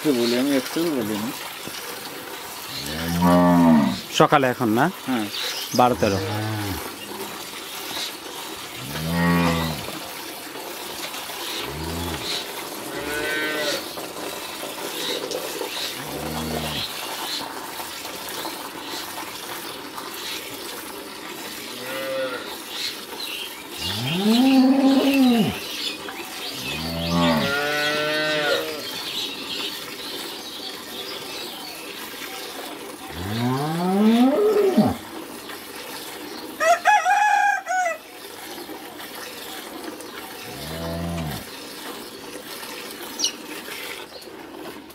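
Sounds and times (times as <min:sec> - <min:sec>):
cattle mooing: 0:02.8 - 0:04.0, 0:08.8 - 0:10.0, 0:11.7 - 0:13.8, 0:16.0 - 0:16.8, 0:21.8 - 0:22.4, 0:23.8 - 0:25.6, 0:26.6 - 0:28.8, 0:33.2 - 0:35.0, 0:40.6 - 0:41.4
milk squirting into metal bucket: 0:04.0 - 0:21.8, 0:38.1 - 0:44.9.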